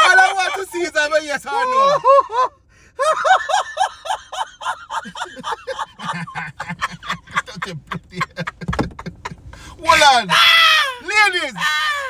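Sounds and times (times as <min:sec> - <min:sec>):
man laughing hard: 0:01.5 - 0:10.0.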